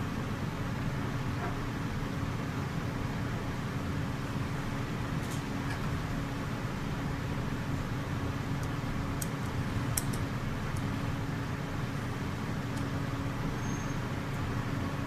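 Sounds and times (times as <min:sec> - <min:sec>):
low background hum: 0:00.0 - 0:15.0
light clicks of small parts: 0:08.6 - 0:10.9.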